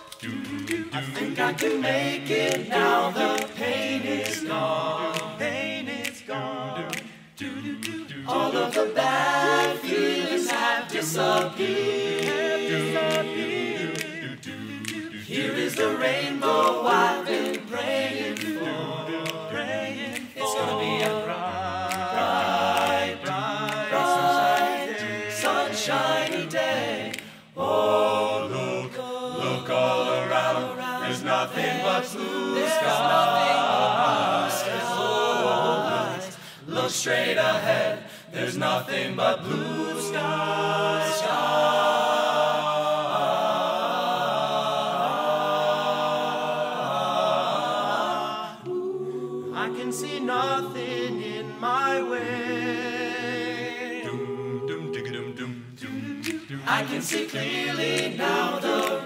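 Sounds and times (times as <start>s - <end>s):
male a cappella group singing: 0.0s - 59.0s.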